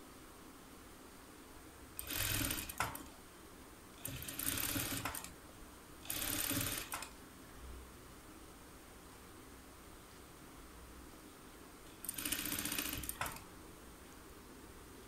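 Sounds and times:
sewing machine stitching: 2.0 - 3.1, 4.0 - 5.3, 6.0 - 7.1, 11.9 - 13.4.

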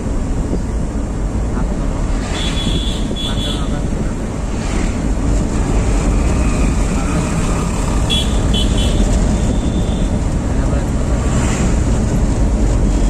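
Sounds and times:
car engine and tyres rumble: 0.0 - 13.0
street traffic: 0.0 - 13.0
vehicle horn toots: 2.4 - 3.7, 8.1 - 10.1.

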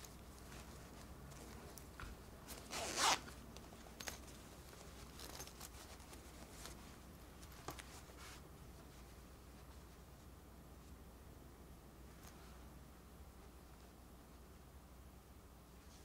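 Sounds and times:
plush fabric rustling: 0.0 - 10.9
small zipper zip: 2.6 - 3.4.

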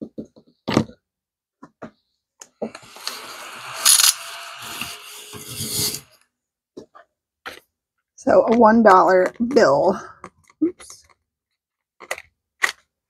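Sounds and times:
desk vacuum whirring: 2.6 - 6.2.

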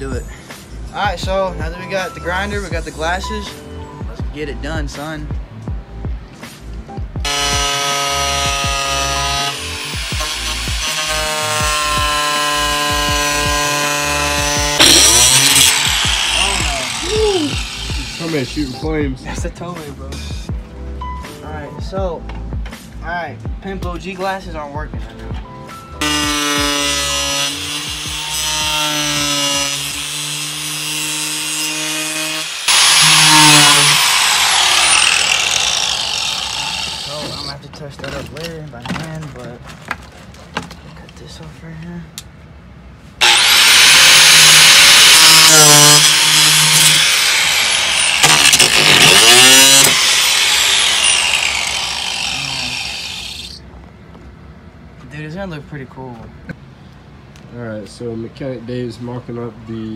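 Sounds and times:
angle grinder cutting: 7.2 - 18.8, 26.0 - 37.5, 43.2 - 53.6.

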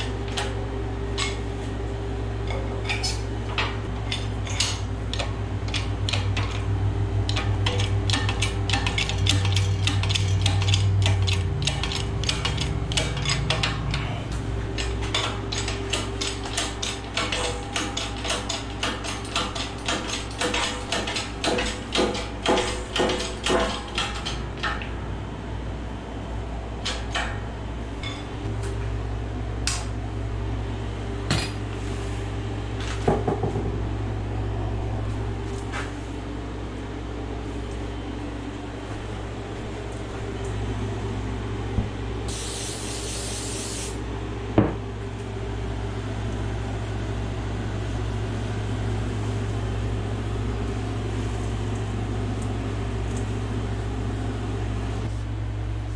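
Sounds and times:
steady low hum: 0.0 - 55.9
spray hiss: 42.3 - 44.0.

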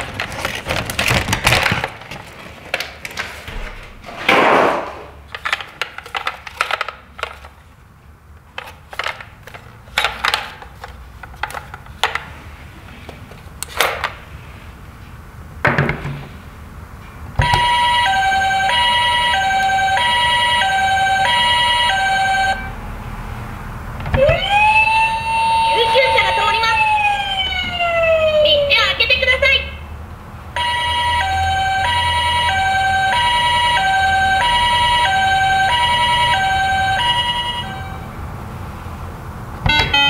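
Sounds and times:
plastic toy handling clicks: 5.3 - 7.6, 8.5 - 12.3
two-tone toy siren: 17.4 - 22.8, 24.2 - 28.8, 30.6 - 38.1, 39.7 - 40.0.

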